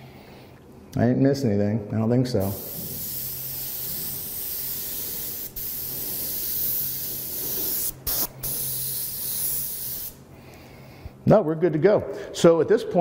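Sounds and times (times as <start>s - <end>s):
airbrush spraying hiss: 2.4s - 10.3s.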